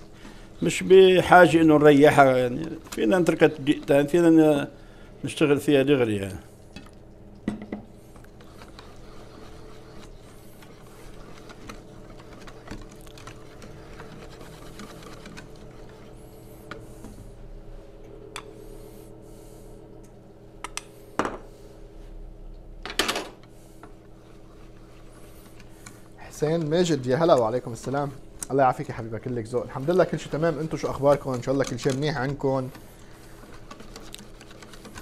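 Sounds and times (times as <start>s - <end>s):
whisk beating batter in bowl: 0.0s - 4.7s, 8.0s - 17.2s, 24.1s - 35.0s.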